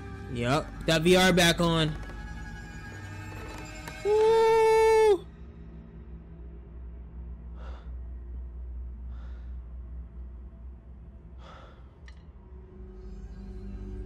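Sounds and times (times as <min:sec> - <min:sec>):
ominous drone music: 0:00.0 - 0:14.0.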